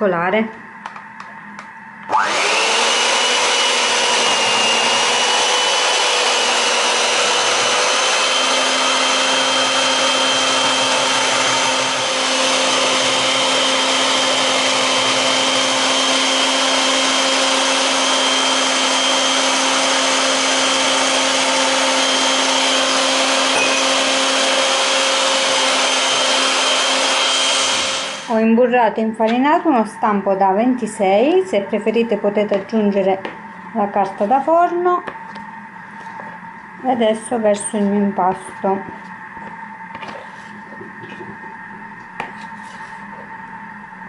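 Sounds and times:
electric hand mixer whining: 2.0s - 28.5s
beaters churning batter: 2.2s - 28.3s.

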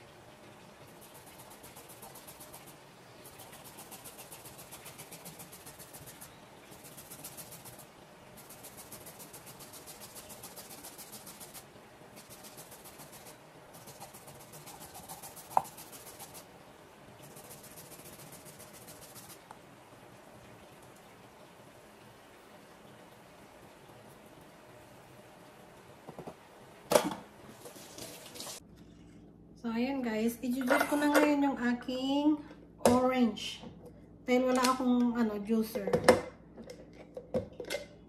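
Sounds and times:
rasp grater scraping food: 1.0s - 11.6s, 12.2s - 16.4s.

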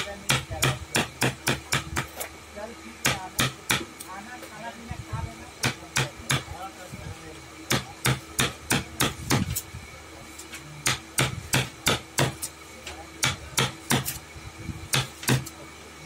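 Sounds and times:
hammer striking wood: 0.3s - 2.2s, 3.0s - 3.9s, 5.6s - 6.5s, 7.7s - 9.5s, 10.8s - 12.5s, 13.2s - 14.2s, 14.9s - 15.5s.

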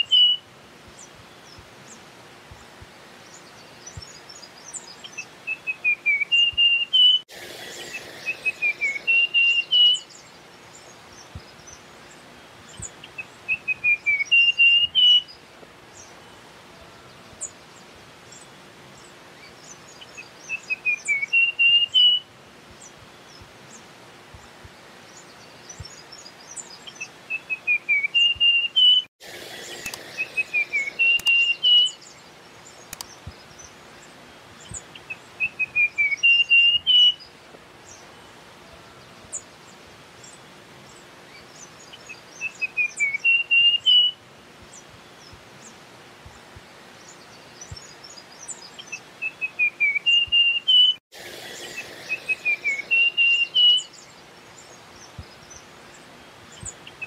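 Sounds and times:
faint high chirps: 0.0s - 24.5s, 25.1s - 39.5s, 47.0s - 57.0s
warbler singing: 0.0s - 57.0s.

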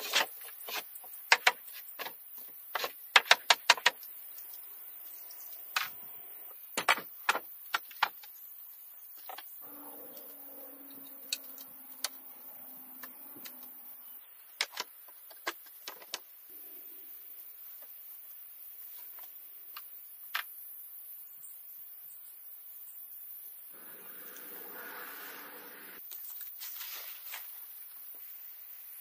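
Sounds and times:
wood and metal clicks and knocks: 6.8s - 8.4s, 14.5s - 16.3s.

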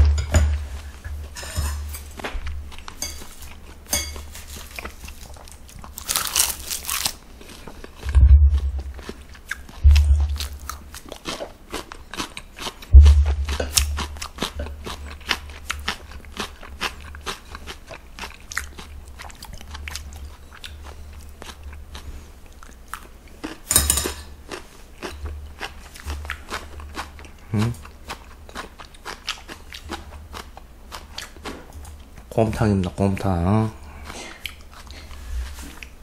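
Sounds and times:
person chewing and crunching food: 0.6s - 36.0s
loud noisy sound: 8.1s - 8.8s.

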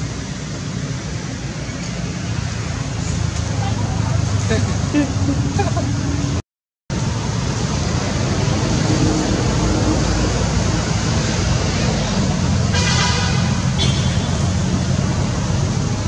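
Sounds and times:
steady rushing noise: 0.0s - 16.0s.

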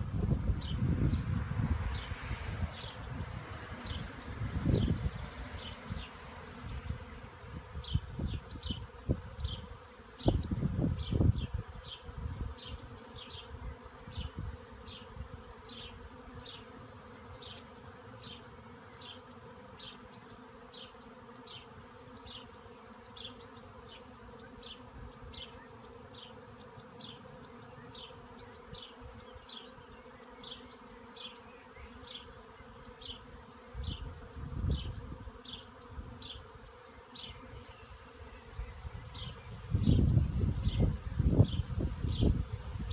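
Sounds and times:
wind buffeting microphone: 0.0s - 9.6s, 10.2s - 12.5s, 33.8s - 35.3s, 38.6s - 42.9s
bee swarm humming: 0.0s - 42.9s.

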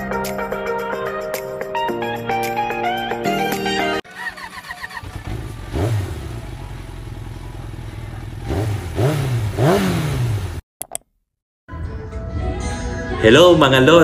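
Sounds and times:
motorcycle engine revving: 4.1s - 10.6s.

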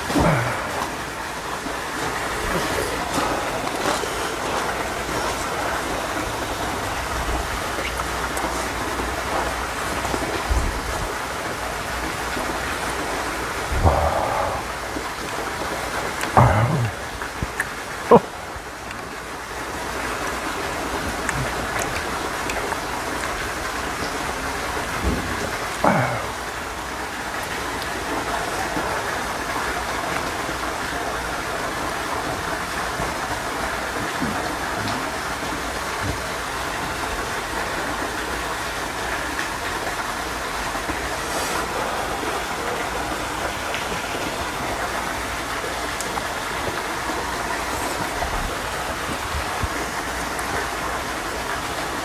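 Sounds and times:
steady rain falling: 0.0s - 52.0s.

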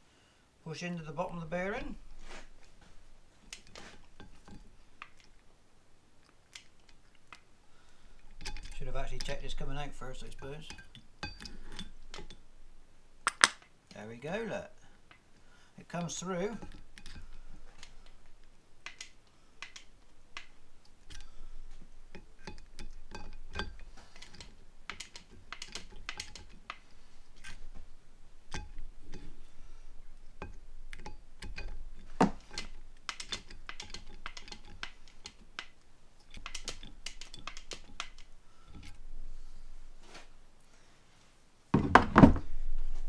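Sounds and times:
grease gun clicking: 18.8s - 21.3s, 30.9s - 38.4s.

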